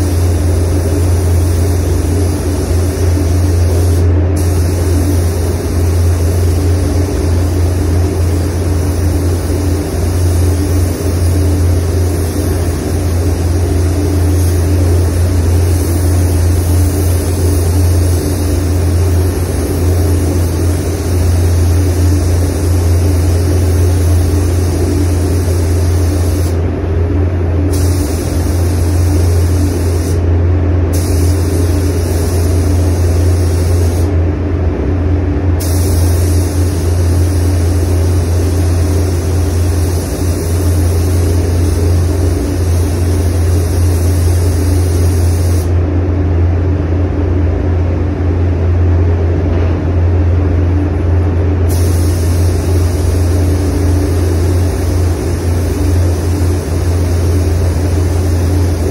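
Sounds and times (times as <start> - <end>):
spray gun hissing: 0.0 - 26.6, 27.7 - 30.2, 30.9 - 34.1, 35.6 - 45.8, 51.7 - 58.9
ventilation low drone: 0.0 - 58.9.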